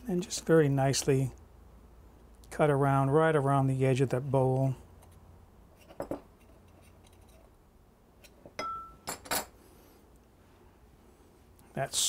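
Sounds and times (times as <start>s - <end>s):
knife clinking on ceramic bowl: 8.6s - 9.5s.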